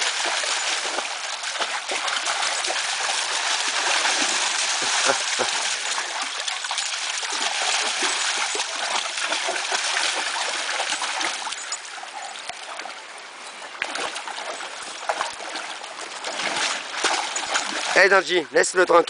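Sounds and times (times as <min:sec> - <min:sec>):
dogs splashing in water: 0:00.0 - 0:18.3.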